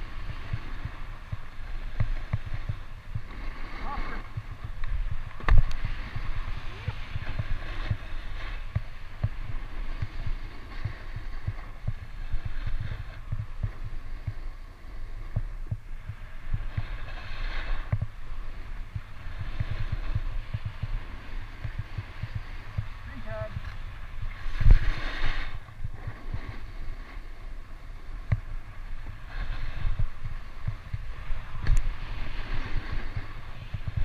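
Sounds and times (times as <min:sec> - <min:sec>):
snowboard scraping over snow: 0:00.0 - 0:34.0
wind buffeting microphone: 0:00.0 - 0:34.0.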